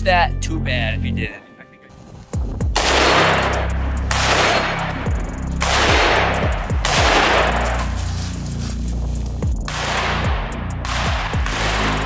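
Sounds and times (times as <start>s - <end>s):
background music with heavy bass: 0.0s - 12.0s
rifle gunfire: 2.7s - 8.0s, 9.6s - 12.0s.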